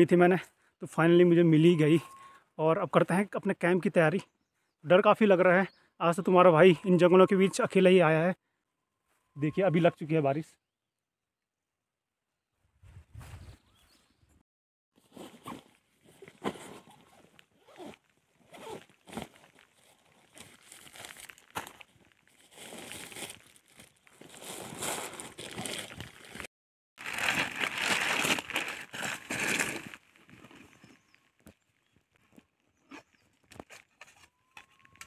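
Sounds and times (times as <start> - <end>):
rustling and crinkling: 15.0 - 35.0.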